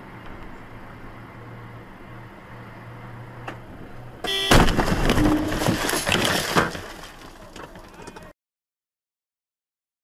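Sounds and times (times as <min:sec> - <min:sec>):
vehicle engine droning: 0:00.0 - 0:05.7
car horn blast: 0:04.2 - 0:05.4
car crash with clattering impacts: 0:04.2 - 0:08.3.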